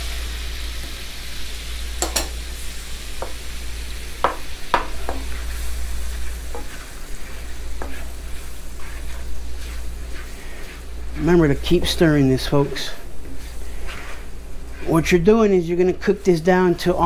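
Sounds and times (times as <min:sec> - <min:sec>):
sauce sizzling in a skillet: 0:00.0 - 0:17.0
spatula scraping a pan: 0:04.2 - 0:17.0.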